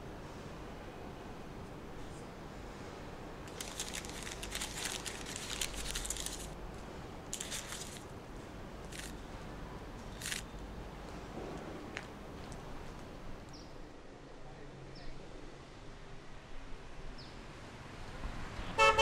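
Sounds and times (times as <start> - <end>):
paper card crumpling: 3.5 - 6.6, 7.3 - 8.1, 8.8 - 9.2, 10.2 - 10.4.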